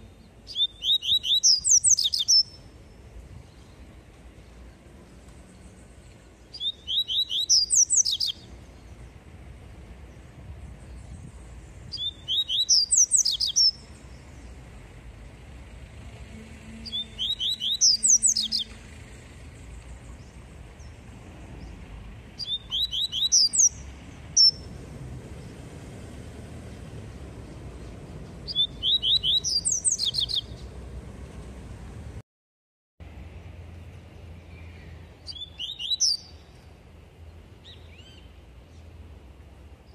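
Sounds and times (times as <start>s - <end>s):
bird singing: 0.0s - 9.2s, 10.0s - 14.7s, 16.3s - 21.0s, 21.6s - 24.7s, 27.4s - 30.8s, 33.8s - 39.0s.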